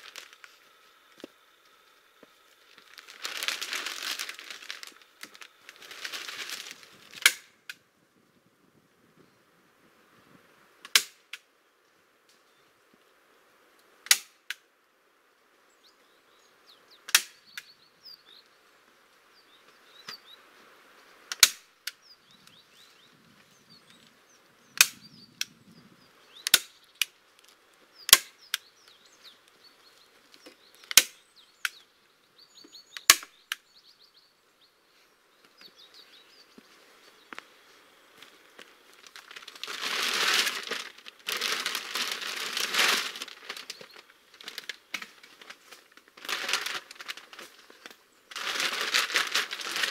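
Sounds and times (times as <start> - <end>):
birds chirping: 15.6 - 21.2, 21.9 - 47.1.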